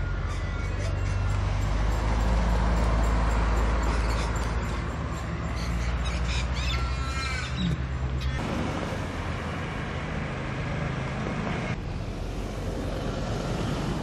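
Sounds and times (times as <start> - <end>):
bird calls chirping: 0.0 - 8.4
road traffic engine hum: 0.0 - 14.0.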